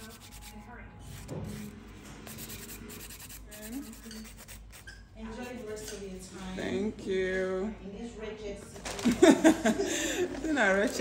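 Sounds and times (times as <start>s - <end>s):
nail file rasping on fingernail: 0.0s - 6.0s.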